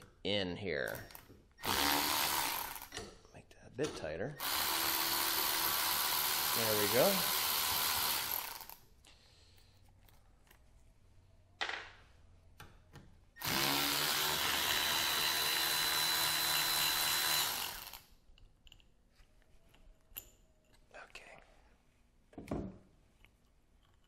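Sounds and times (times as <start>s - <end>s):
electric ratchet spinning out bolt: 1.6s - 2.9s, 4.4s - 8.8s, 13.4s - 18.1s.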